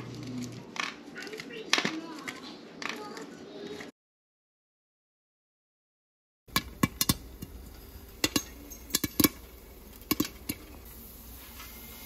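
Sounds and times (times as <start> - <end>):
popcorn popping: 6.5 - 11.7.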